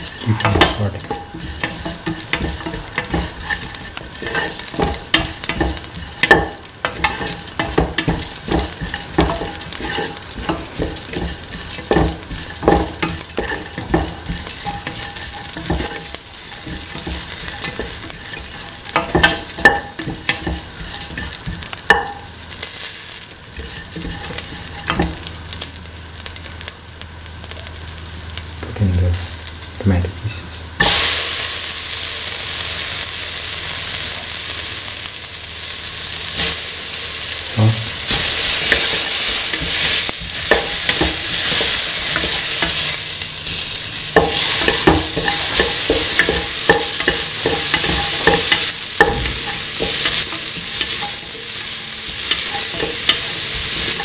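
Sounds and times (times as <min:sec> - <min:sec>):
loud sizzle of tomatoes in oil: 0:00.0 - 0:54.0
onions sizzling in oil: 0:00.0 - 0:54.0.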